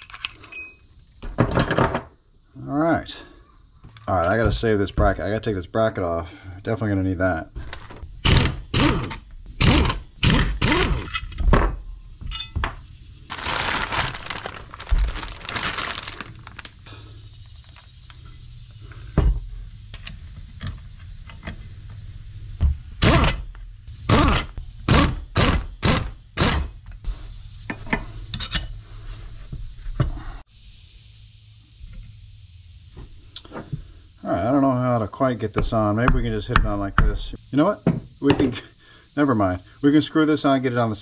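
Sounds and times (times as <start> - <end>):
metal tools clanking and knocking: 0.0 - 2.1, 11.0 - 12.8, 27.7 - 28.7.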